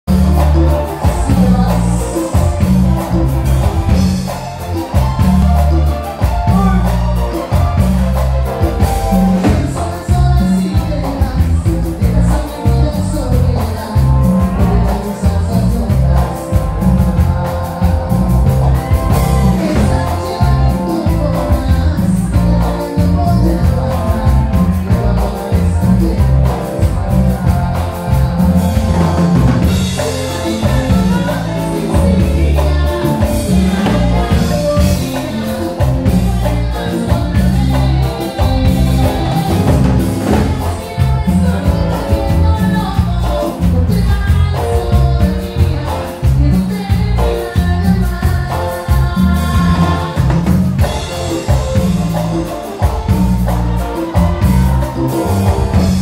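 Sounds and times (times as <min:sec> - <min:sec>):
drum kit: 0:00.0 - 0:56.0
electric guitar: 0:00.0 - 0:56.0
heavy electric bass line: 0:00.0 - 0:56.0
person singing: 0:00.1 - 0:56.0.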